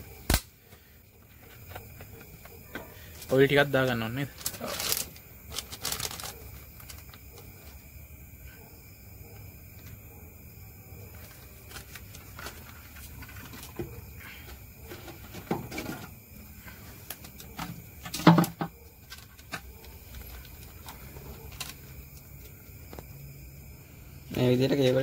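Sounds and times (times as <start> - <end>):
plastic bag rustling: 4.3 - 7.1.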